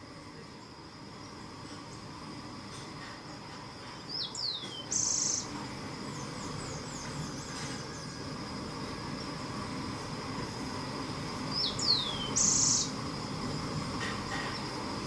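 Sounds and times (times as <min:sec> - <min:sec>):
small birds calling: 0:04.0 - 0:08.2, 0:11.5 - 0:13.0.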